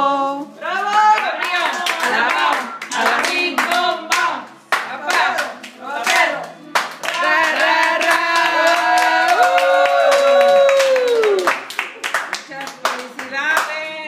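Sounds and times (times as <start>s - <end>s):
group singing: 0.0s - 9.6s
people clapping: 0.6s - 14.0s.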